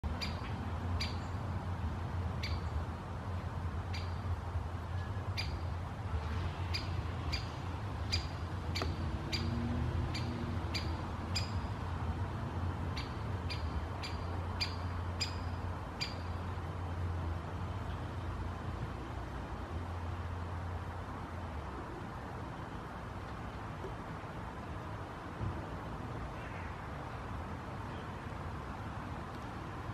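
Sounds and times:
woodpecker sharp kik calls: 0:00.2 - 0:01.3, 0:02.4 - 0:02.7, 0:03.9 - 0:04.2, 0:06.7 - 0:11.7, 0:13.0 - 0:16.4.

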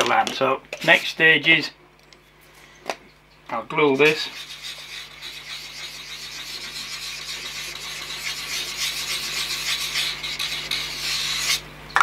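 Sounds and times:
glue stick scraping on board: 0:04.4 - 0:11.6.

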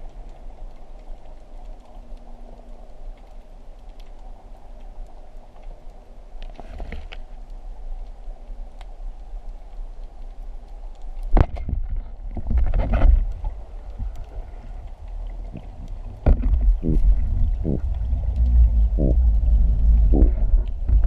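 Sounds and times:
muffled underwater rumble: 0:00.0 - 0:21.0
knocks underwater: 0:11.3 - 0:13.2, 0:15.6 - 0:21.0.

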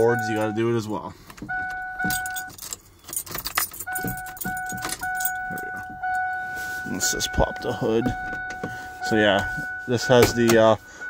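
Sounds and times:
dashboard warning chime beeps: 0:00.0 - 0:11.0
keys jangling in ignition: 0:02.0 - 0:06.2.

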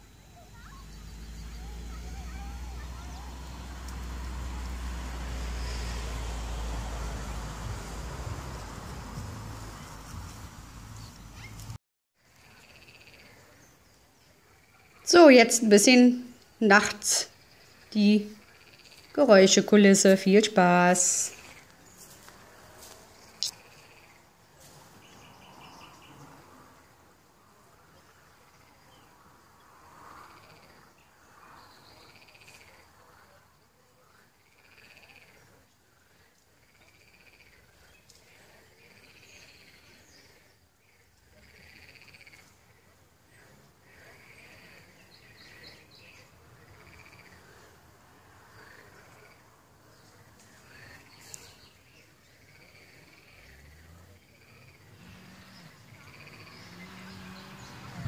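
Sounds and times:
frog calls: 0:18.4 - 0:19.1, 0:23.4 - 0:24.2, 0:34.4 - 0:35.5, 0:36.6 - 0:37.7, 0:40.9 - 0:42.5, 0:46.6 - 0:47.6, 0:55.9 - 0:56.6.

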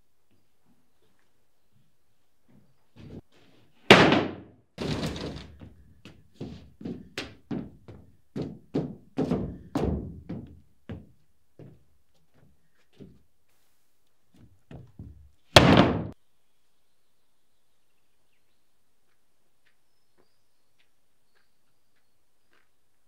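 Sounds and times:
boot footsteps on hollow boards: 0:03.9 - 0:13.2, 0:14.3 - 0:16.2
heavy thump: 0:15.6 - 0:16.2.

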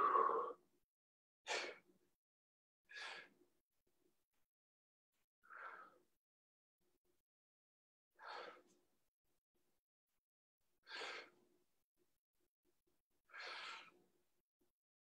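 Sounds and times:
person exhaling hard: 0:00.0 - 0:00.5.

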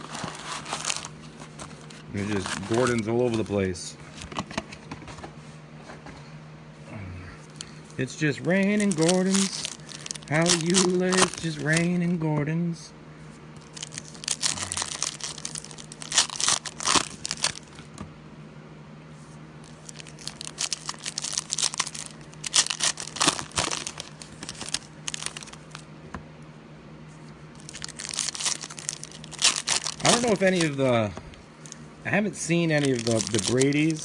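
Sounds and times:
foil wrappers torn and crinkled: 0:00.0 - 0:04.4, 0:08.4 - 0:12.0, 0:13.6 - 0:17.9, 0:19.6 - 0:25.9, 0:27.6 - 0:31.0, 0:32.4 - 0:34.0.

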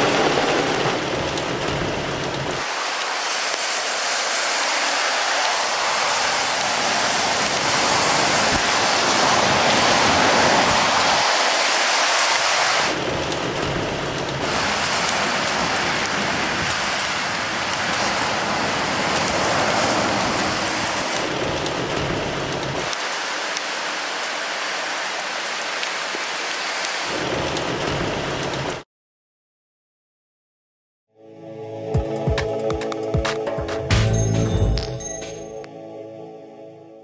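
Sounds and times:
heavy rain falling: 0:00.0 - 0:28.8.

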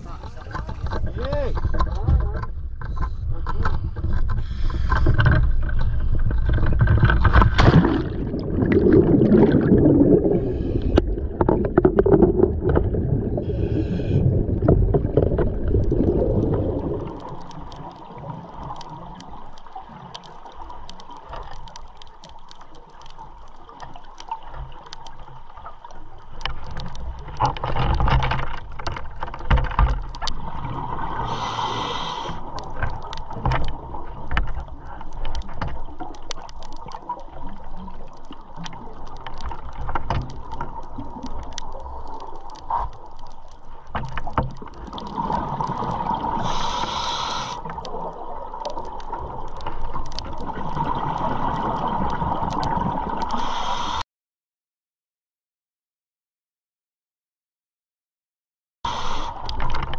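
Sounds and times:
water noise: 0:00.0 - 0:54.0, 0:58.9 - 0:59.9
wind: 0:00.0 - 0:54.0.

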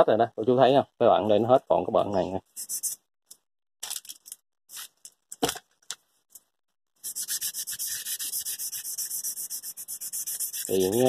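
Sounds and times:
fast sandpaper rubbing: 0:02.6 - 0:03.0, 0:07.0 - 0:11.0
sandpaper scraping metal: 0:02.6 - 0:03.0, 0:07.0 - 0:11.0.

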